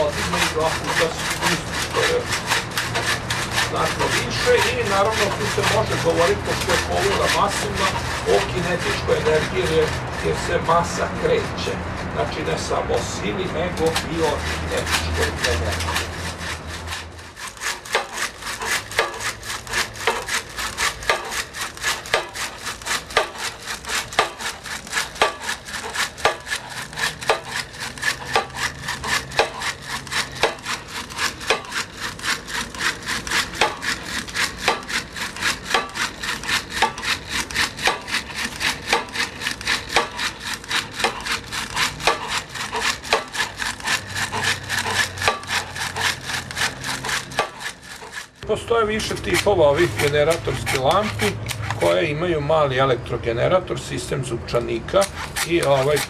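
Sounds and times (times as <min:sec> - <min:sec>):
hand generator flashlights whirring: 0:00.0 - 0:52.1, 0:55.0 - 0:56.0.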